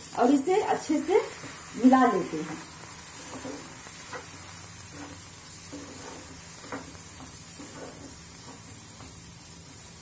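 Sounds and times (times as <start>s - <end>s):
spatula scraping frying pan: 2.4s - 9.2s.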